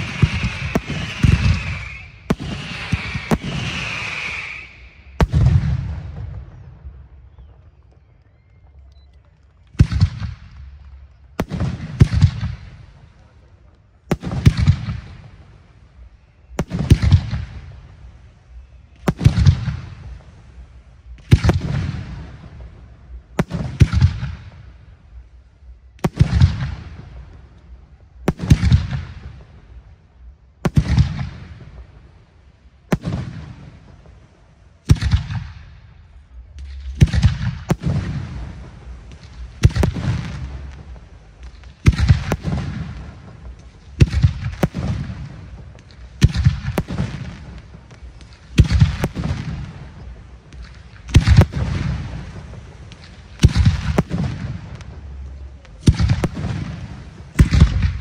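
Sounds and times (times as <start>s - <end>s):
fireworks shells bursting: 0.0s - 5.6s.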